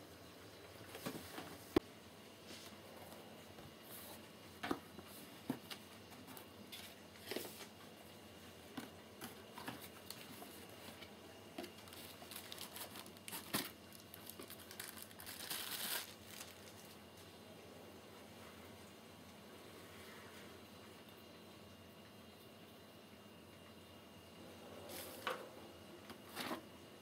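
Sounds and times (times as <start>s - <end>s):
plastic wrapping rustling: 9.2s - 17.0s.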